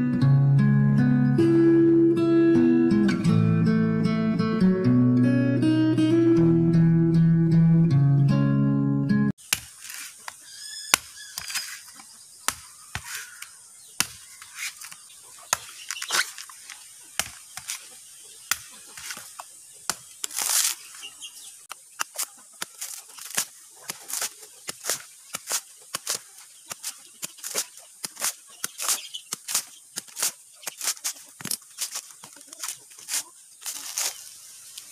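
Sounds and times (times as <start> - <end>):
machete chopping coconut husk: 9.4 - 34.2
husk scraping rasp: 9.6 - 17.9, 22.0 - 34.2.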